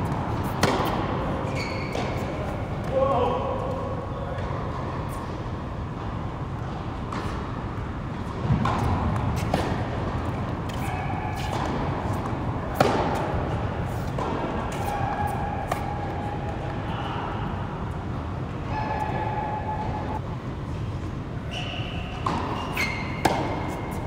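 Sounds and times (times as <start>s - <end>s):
tennis ball bounces: 0.0s - 2.3s, 8.2s - 16.8s, 22.2s - 24.0s
tennis racket strikes: 0.4s - 1.2s, 10.7s - 16.0s, 22.2s - 24.0s.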